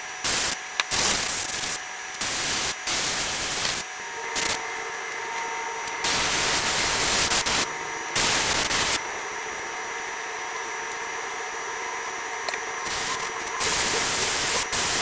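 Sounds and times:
airbrush air hiss bursts: 0.0s - 4.6s, 6.0s - 9.3s, 12.8s - 15.0s.

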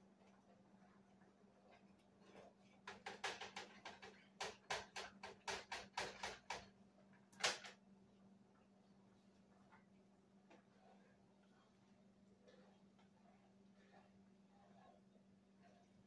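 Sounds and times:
spoon knocking on a pot: 2.9s - 6.6s
faint steady hum: 6.6s - 16.0s.

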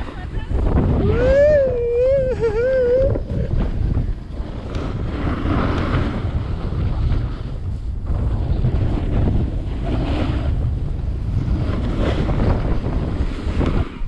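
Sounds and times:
wind on microphone: 0.0s - 14.0s
skis scraping on snow: 3.3s - 14.0s.

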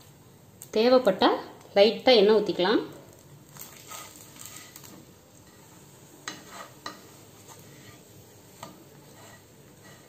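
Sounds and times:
bread sizzling in oil: 3.1s - 10.0s
wooden spatula scraping pan: 3.6s - 10.0s.

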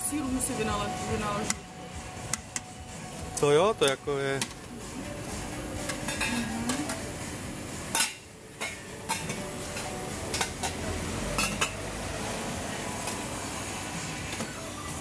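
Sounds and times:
metal lids being handled: 7.9s - 11.8s.

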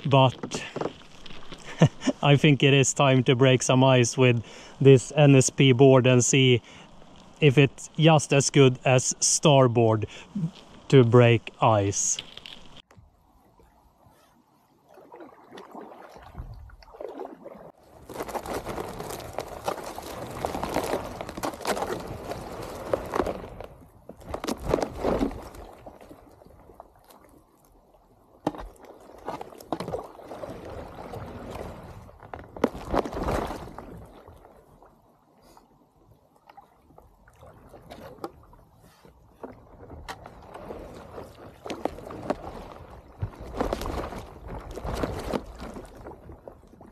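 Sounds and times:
ice crunching and crackling: 0.0s - 3.1s, 10.1s - 12.8s, 17.9s - 26.0s, 31.5s - 34.1s, 40.3s - 46.4s
paddle strokes in water: 0.0s - 27.8s, 28.4s - 46.9s
ice clicking and cracking: 0.2s - 2.1s, 11.6s - 12.8s, 18.1s - 25.6s.

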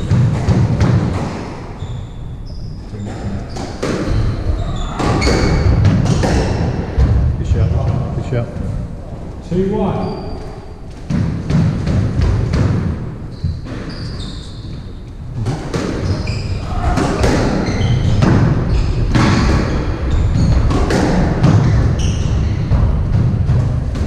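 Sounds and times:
squash ball struck by rackets: 0.0s - 1.8s, 3.6s - 7.3s, 11.1s - 13.9s, 15.4s - 16.2s, 16.9s - 24.0s
shoes squeaking on wooden floor: 1.2s - 6.3s, 13.2s - 22.8s
ball smacking off walls: 16.8s - 17.6s.

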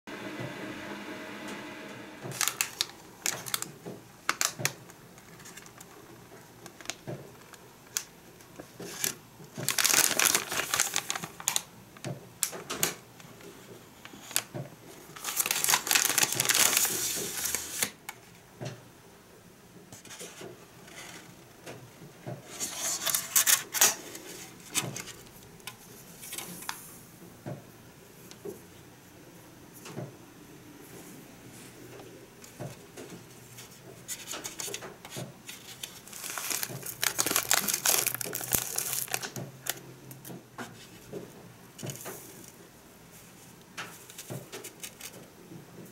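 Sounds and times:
crinkly plastic bag crackling: 2.3s - 12.6s, 14.0s - 18.0s, 33.5s - 40.2s, 43.3s - 45.3s.

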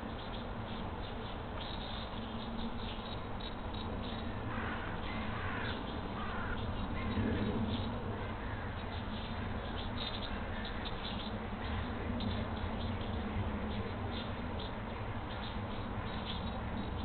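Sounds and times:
microphone hiss and hum: 0.0s - 17.0s.

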